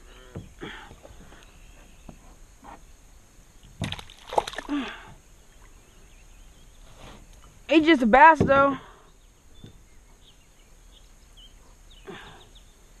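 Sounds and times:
fish splashing at the surface: 3.8 - 4.9.

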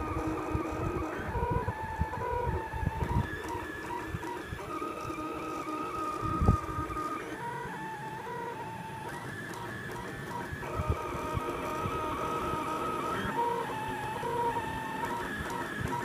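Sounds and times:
stepper motors whining: 0.0 - 16.0.

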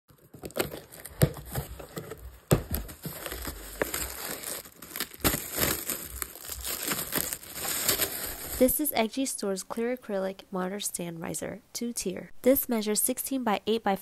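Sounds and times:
plastic bag crinkling: 0.1 - 8.8.

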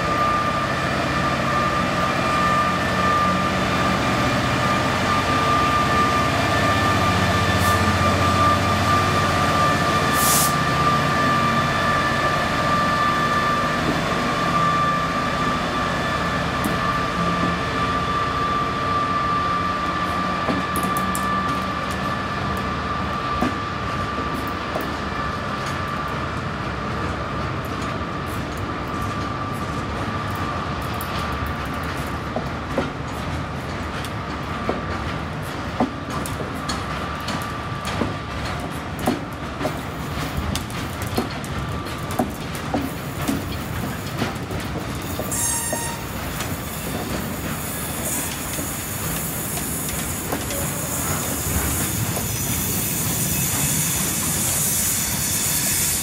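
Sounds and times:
diesel locomotive engine rumbling: 0.0 - 56.0
wheel clicks over rail joints: 30.9 - 47.7
high-pitched wheel squeal: 45.3 - 46.1.

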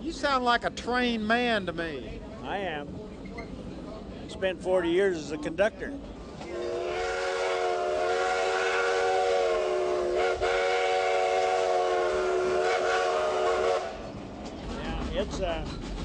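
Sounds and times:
steam locomotive whistle: 6.4 - 14.1.

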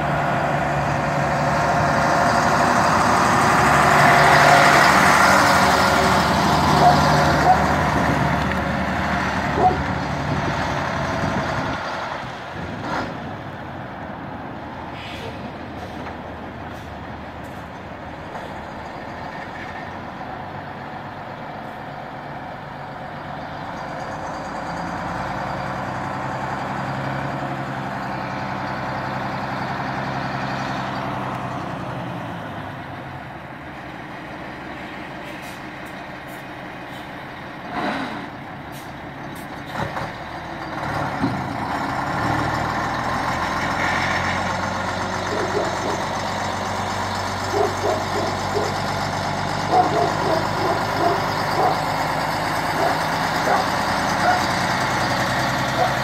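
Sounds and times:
truck diesel engine running: 0.0 - 56.0.

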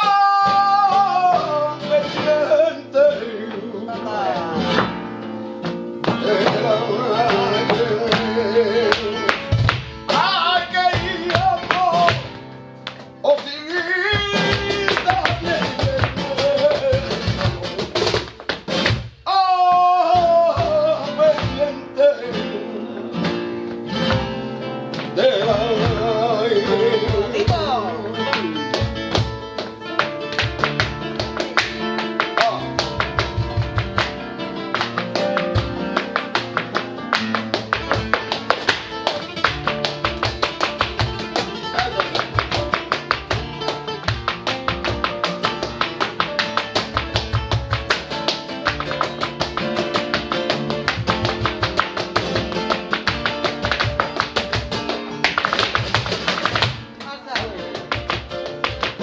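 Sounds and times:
acoustic guitars playing flamenco: 0.0 - 59.0
cajon drum: 0.0 - 59.0
dancer's footwork on wooden stage: 0.0 - 59.0
hand clapping: 5.6 - 19.0, 27.3 - 59.0.

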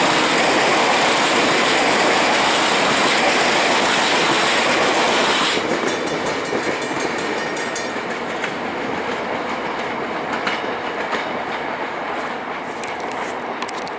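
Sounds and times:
train rolling rumble: 0.0 - 13.9.

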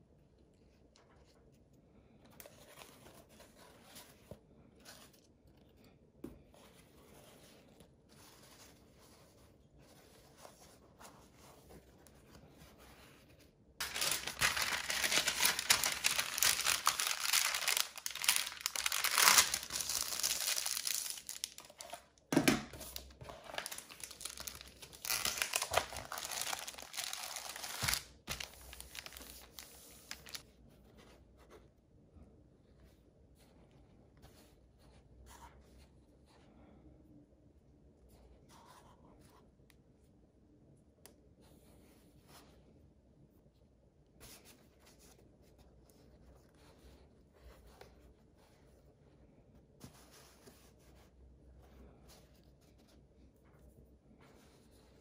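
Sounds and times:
faint hand movements on paper: 0.5 - 31.9
paper rustling and crinkling: 6.5 - 30.4.

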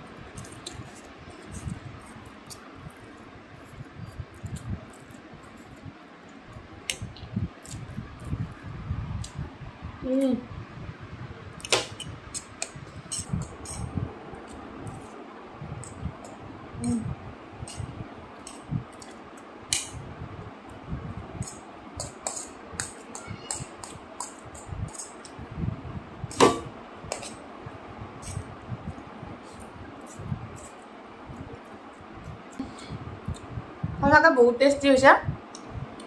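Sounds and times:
fork clicking and scraping on plate: 21.4 - 25.4.

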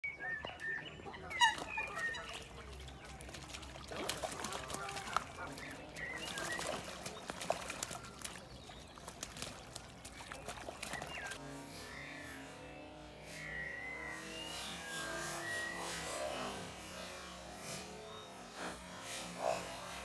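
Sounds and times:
birds splashing in water: 0.0 - 20.0
short bird calls: 0.1 - 3.3.

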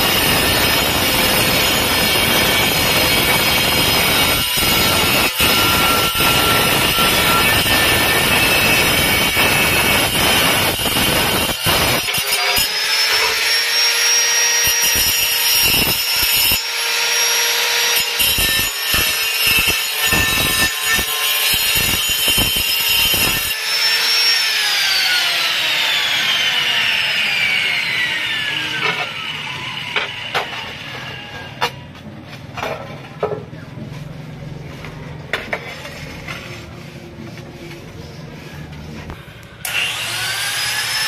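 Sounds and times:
grinder spinning down: 0.0 - 17.4, 21.7 - 31.6
angle grinder cutting tile: 0.0 - 31.8, 39.0 - 41.0.

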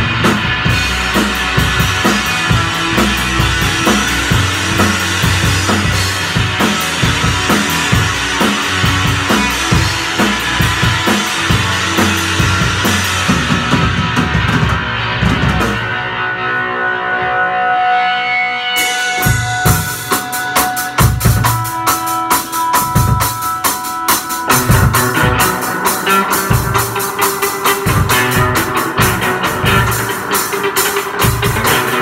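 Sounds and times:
drum kit: 0.0 - 16.7, 18.0 - 32.0
electric bass: 0.0 - 23.5, 24.4 - 32.0
electric guitar: 0.0 - 32.0.

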